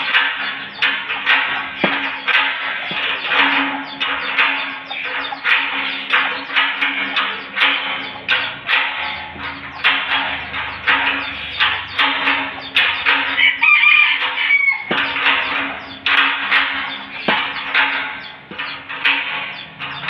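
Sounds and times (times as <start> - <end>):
chickens clucking: 0.0 - 20.0
rooster crowing: 13.4 - 14.9.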